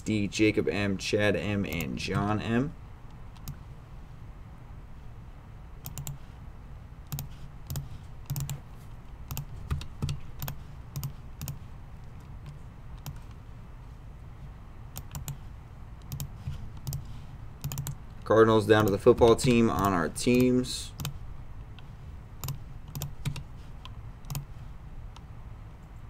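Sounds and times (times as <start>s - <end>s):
keyboard and mouse clicks: 3.1s - 3.6s, 5.8s - 6.2s, 7.1s - 8.6s, 9.2s - 13.4s, 14.9s - 15.4s, 16.0s - 18.0s, 18.8s - 24.5s.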